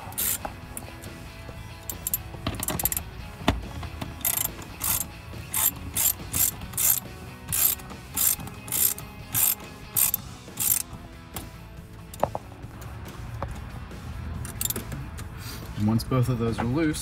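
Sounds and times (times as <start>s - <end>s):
socket ratchet clicking: 0.0s - 1.1s, 1.8s - 3.0s, 4.2s - 10.9s, 14.5s - 14.8s.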